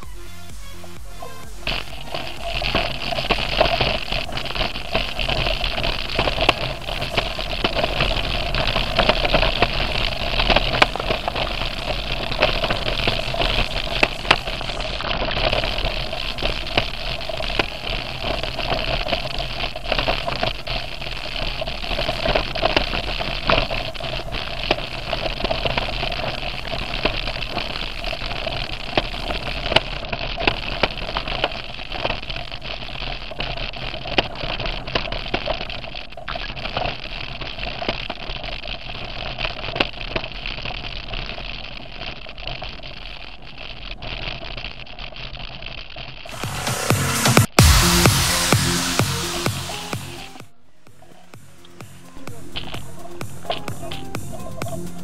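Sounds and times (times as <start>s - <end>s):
bike tyres rolling: 0.0s - 46.4s, 50.4s - 55.0s
wheels rattling over stones: 1.7s - 45.7s.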